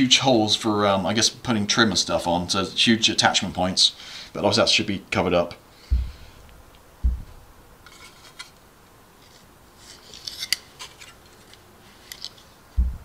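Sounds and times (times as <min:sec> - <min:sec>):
plastic parts clicking and rustling: 0:09.2 - 0:12.5.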